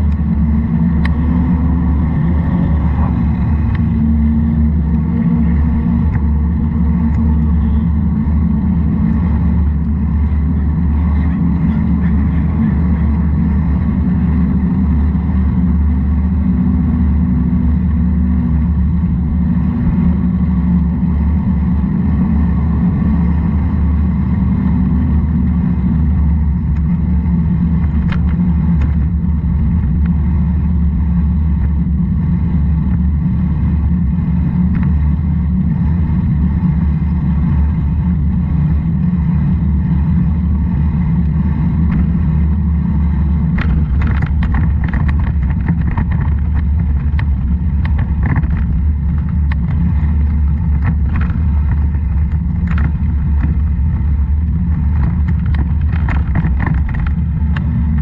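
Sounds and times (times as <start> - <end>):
vehicle riding on wet road: 0.0 - 58.0
sharp clicks and rattles: 43.4 - 58.0.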